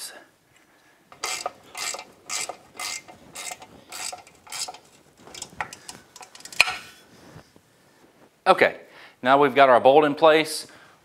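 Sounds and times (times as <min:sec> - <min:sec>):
hand ratchet clicking: 0:01.1 - 0:06.8.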